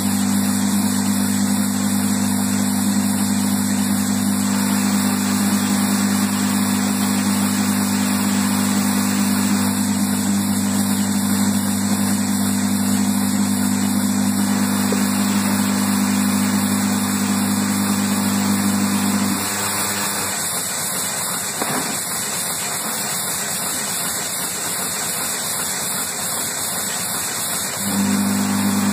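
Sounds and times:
machinery humming: 0.0 - 28.9
wide hiss: 19.3 - 27.8.

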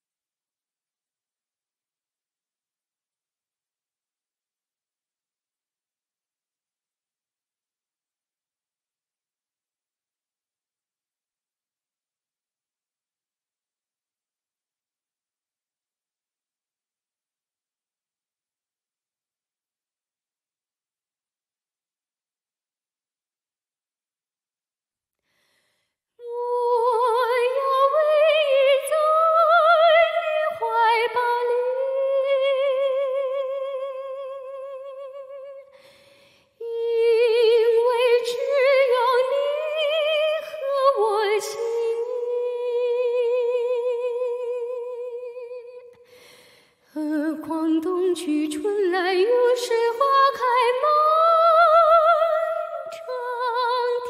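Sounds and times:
woman singing unaccompanied: 26.2 - 35.6, 36.6 - 45.9, 47.0 - 54.0.

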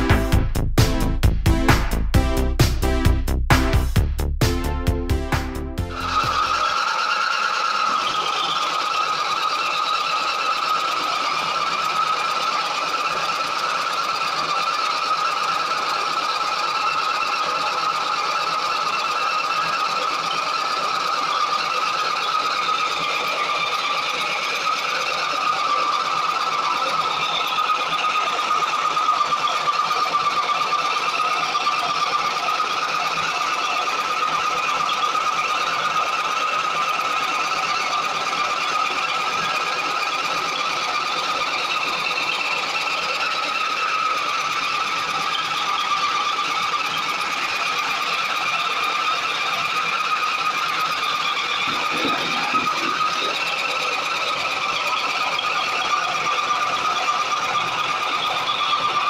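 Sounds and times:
maize sheller whining: 0.0 - 12.0, 20.1 - 59.0.

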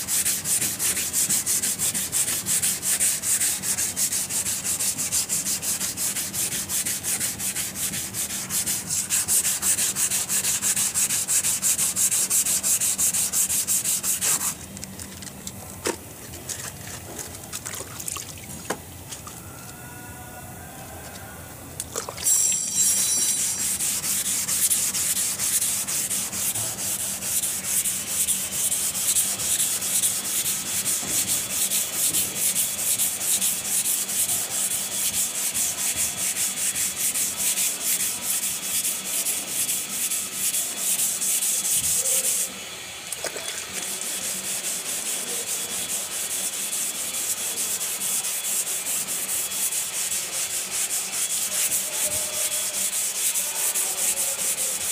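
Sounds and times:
sandpaper rubbing back and forth: 0.0 - 14.6, 22.8 - 42.6, 43.8 - 54.9.

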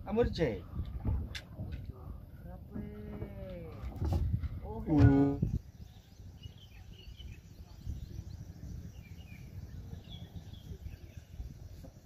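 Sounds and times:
low uneven rumble: 0.0 - 12.0
faint bird chirps: 5.4 - 11.9.

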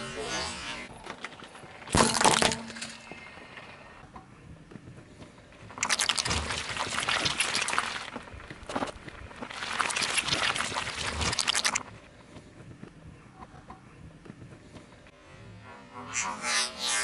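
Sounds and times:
tyre squashing jelly: 5.8 - 11.8.

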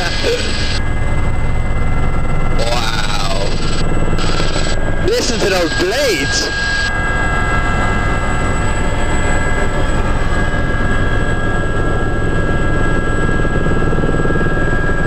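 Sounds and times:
high whines: 0.0 - 0.8, 2.5 - 9.4
helicopter rotor beating: 0.0 - 15.0.

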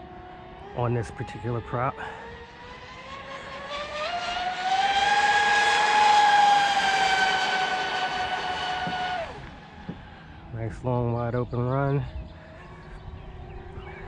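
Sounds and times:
electric motor whine: 0.0 - 10.5.

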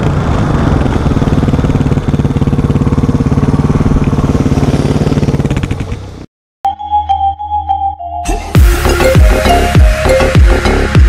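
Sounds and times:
motorcycle engine running: 0.0 - 6.3.

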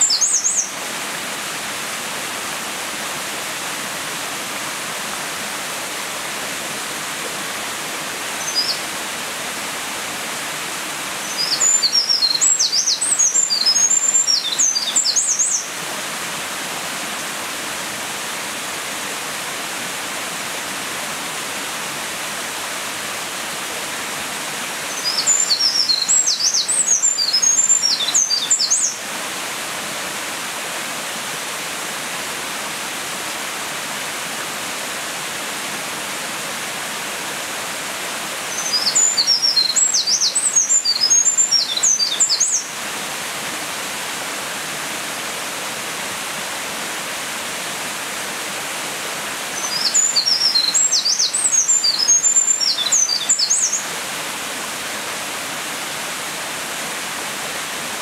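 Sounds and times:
wren singing: 0.0 - 0.8, 8.4 - 8.8, 11.3 - 15.7, 24.9 - 29.0, 38.5 - 42.7, 49.6 - 53.9.

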